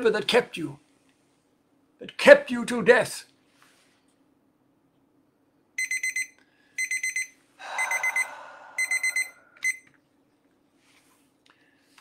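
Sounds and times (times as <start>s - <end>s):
electronic alarm beeping: 5.8s - 9.9s.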